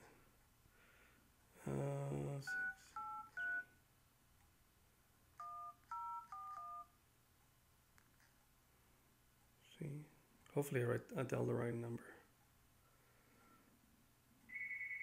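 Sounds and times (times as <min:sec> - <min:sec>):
phone key tone beeps: 0:02.5 - 0:03.8, 0:05.4 - 0:06.9.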